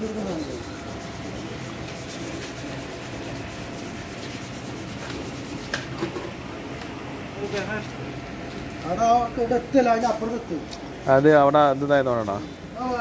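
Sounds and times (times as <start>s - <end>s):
sanding metal by hand: 0.0s - 5.9s, 11.2s - 13.0s.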